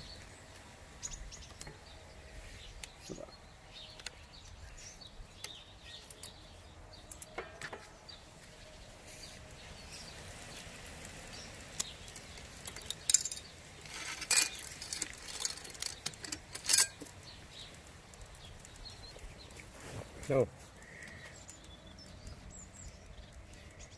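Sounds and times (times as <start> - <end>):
bike chain clinking and rattling: 12.2 - 19.1.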